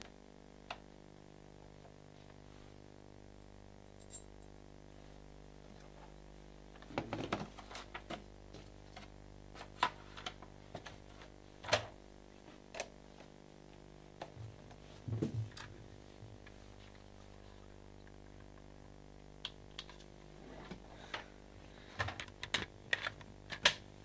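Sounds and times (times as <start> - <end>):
vacuum tubes clicking and knocking: 6.7 - 12.0, 18.0 - 20.1, 21.9 - 23.9.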